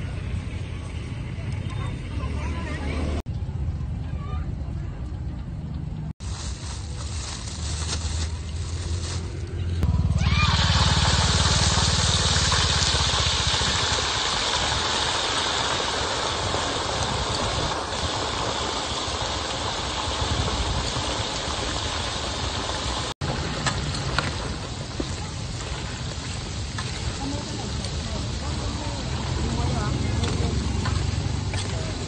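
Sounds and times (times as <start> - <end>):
hot oil sizzling: 10.1 - 32.0.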